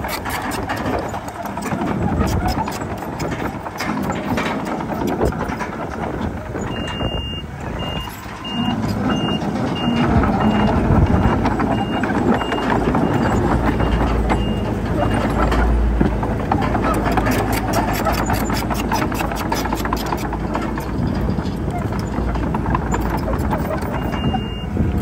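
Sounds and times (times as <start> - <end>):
diesel engines running: 0.0 - 25.0
reversing alarm beeping: 6.6 - 15.6, 23.8 - 24.8.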